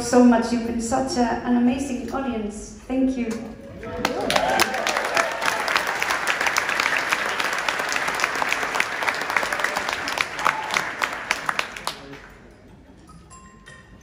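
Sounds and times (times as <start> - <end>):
audience applauding: 3.8 - 12.5.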